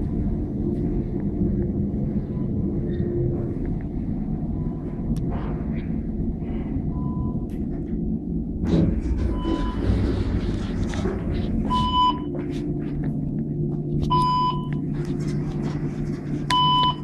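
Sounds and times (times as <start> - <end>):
steady low hum: 0.0 - 17.0
elevator doors opening: 4.5 - 12.4
electronic beep: 9.3 - 9.9, 11.7 - 12.3, 14.1 - 14.8, 16.5 - 17.0.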